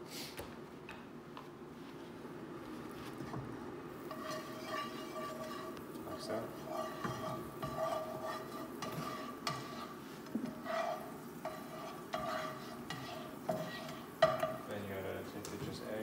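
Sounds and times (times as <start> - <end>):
light sizzle: 0.0 - 16.0
spatula scraping frying pan: 3.2 - 14.7.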